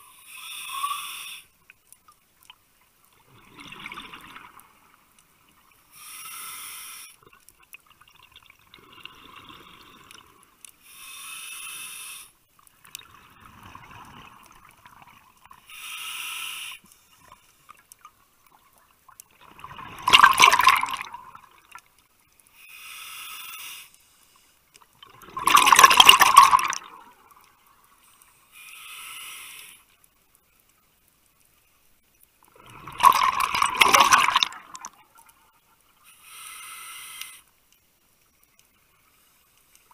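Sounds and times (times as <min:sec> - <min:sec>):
bubbling exhale underwater: 0:03.3 - 0:04.6, 0:19.5 - 0:21.8, 0:25.0 - 0:27.2, 0:32.6 - 0:35.0.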